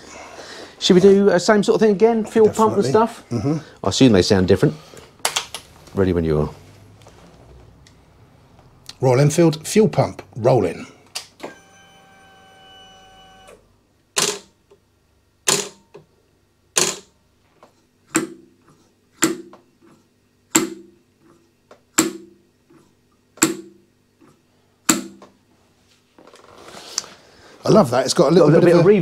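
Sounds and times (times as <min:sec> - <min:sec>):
fuel pump whine: 0:11.4 - 0:14.4.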